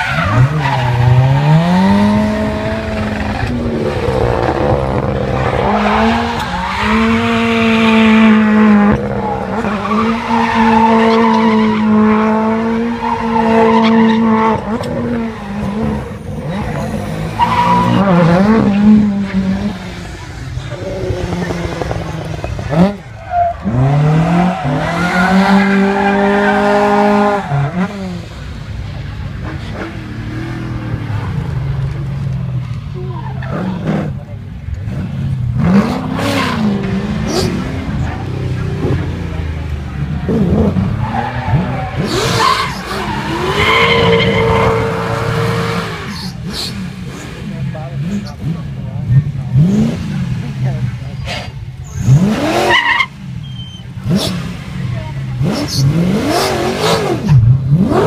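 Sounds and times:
rally car engine revving: 0.0s - 58.0s
tyre squeal: 41.0s - 46.5s, 51.2s - 54.0s.

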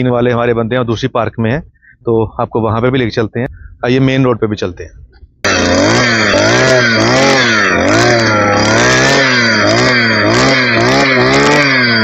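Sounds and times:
two-stroke auger engine running: 5.4s - 12.0s.

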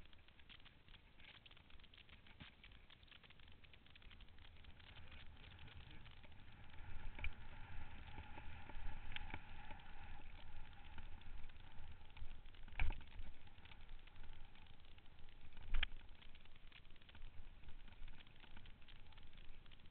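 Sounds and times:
bike tyres rumbling on trail: 4.3s - 19.9s.

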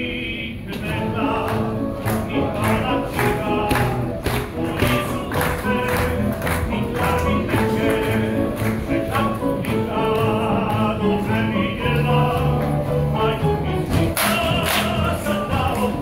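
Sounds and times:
choir of young voices singing: 0.7s - 16.0s.

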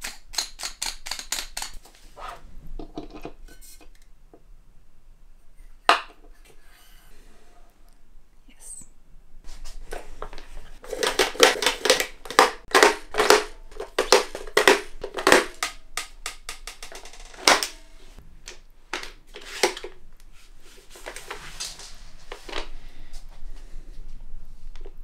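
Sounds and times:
grenade shells clicking and knocking: 0.0s - 1.8s, 10.8s - 17.8s.

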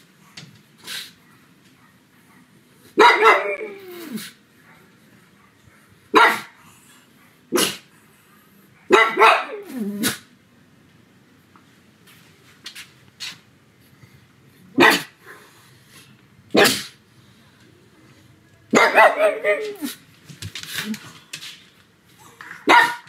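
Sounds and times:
dog barking sharply: 3.0s - 3.7s, 6.2s - 6.5s, 8.9s - 9.7s, 14.8s - 15.1s, 16.5s - 17.0s, 18.8s - 19.9s, 22.6s - 23.0s
dog yowling: 3.0s - 4.2s, 18.8s - 20.0s.

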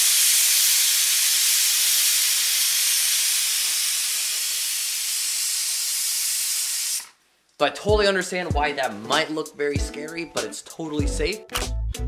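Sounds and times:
pressure cooker venting steam: 0.0s - 7.2s.

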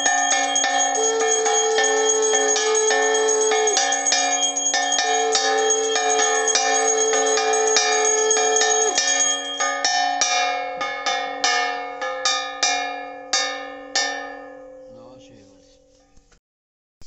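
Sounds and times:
hand bell ringing: 0.0s - 12.1s.

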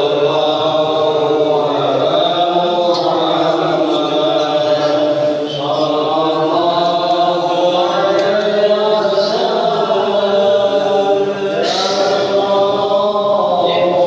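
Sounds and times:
men chanting devotional chant: 0.0s - 14.0s.

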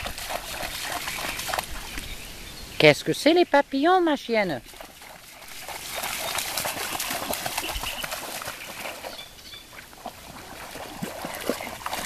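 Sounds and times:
paws splashing in water: 0.0s - 2.2s, 4.6s - 12.0s.

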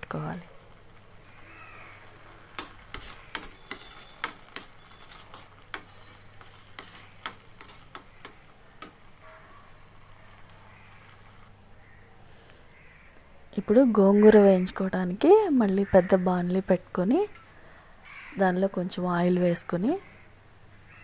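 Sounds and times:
spoon scraping metal pan: 1.4s - 11.5s.

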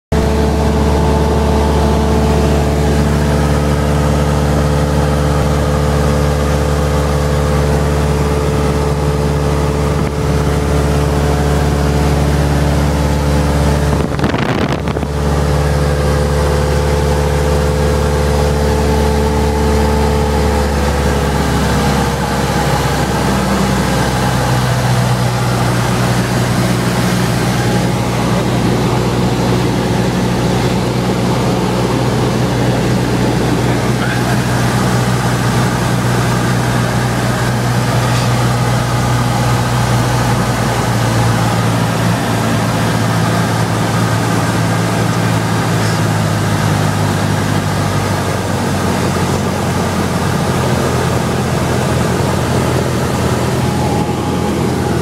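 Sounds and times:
propeller plane engine drone: 0.1s - 55.0s
wind noise: 8.1s - 15.8s.

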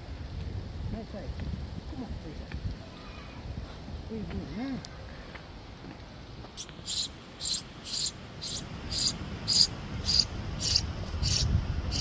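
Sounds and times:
young birds rasping calls: 6.6s - 12.0s.

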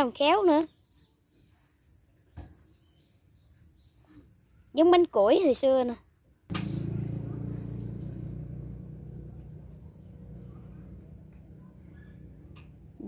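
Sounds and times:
crickets chirping faintly: 0.0s - 13.0s
low hum: 6.5s - 13.0s.

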